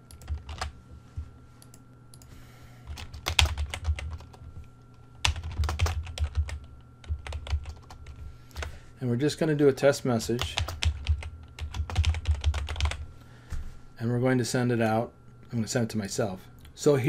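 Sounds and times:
typing on computer keyboard: 0.0 - 0.7, 2.9 - 4.4, 5.2 - 8.2, 10.4 - 13.0.

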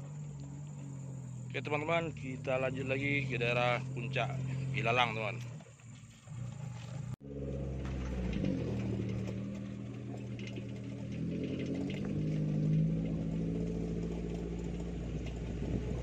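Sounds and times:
car engine running: 0.0 - 16.0.

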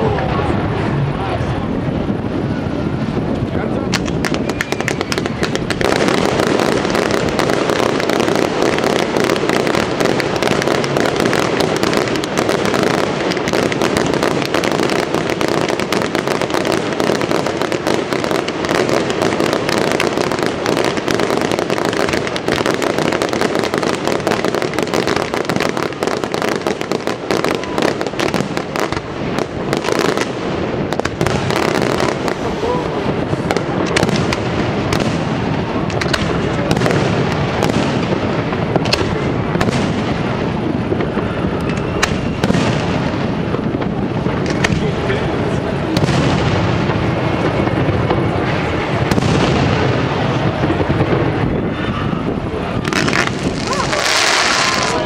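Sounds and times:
fireworks bursting: 0.0 - 55.0.

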